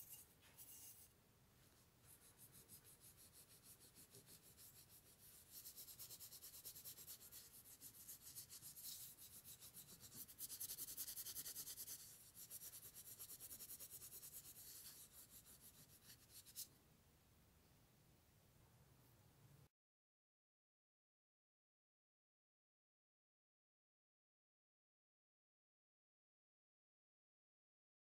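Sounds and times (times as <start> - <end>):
cloth rubbing on metal: 0.0 - 1.1.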